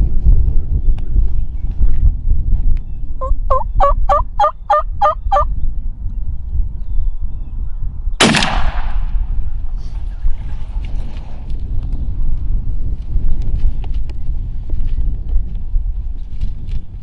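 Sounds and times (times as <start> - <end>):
turkey gobbling: 3.2 - 5.5
shotgun blast: 8.2 - 9.3.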